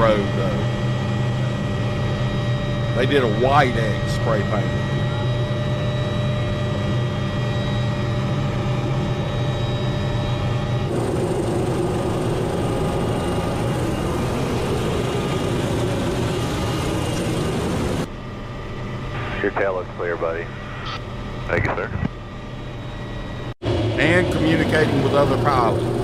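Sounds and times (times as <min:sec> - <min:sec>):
helicopter engine and rotor: 0:00.0 - 0:26.0
faint high whine: 0:13.8 - 0:25.7.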